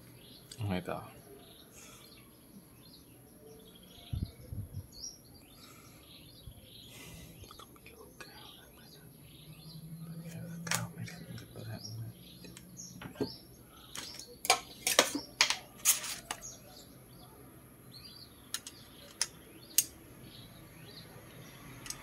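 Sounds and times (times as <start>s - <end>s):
birds chirping faintly: 0.0s - 22.0s
clicks of tools on workbench: 18.5s - 19.9s.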